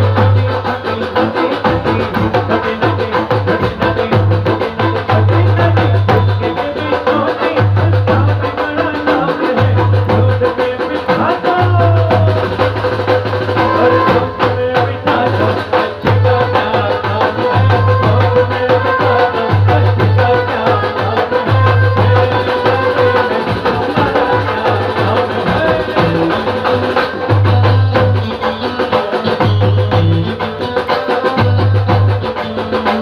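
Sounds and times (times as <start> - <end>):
held bass line: 0.0 - 8.5, 9.1 - 10.6, 11.2 - 16.8, 21.4 - 28.4
drum and percussion hits: 0.0 - 33.0.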